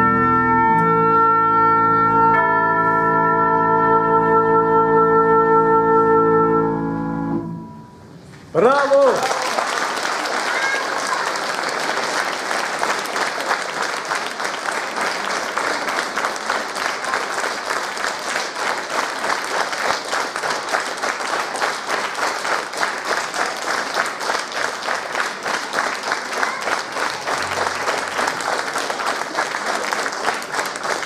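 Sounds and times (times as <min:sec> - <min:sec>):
audience applauding: 0:08.6 - 0:31.0
rhythmic clapping in unison: 0:09.0 - 0:31.0.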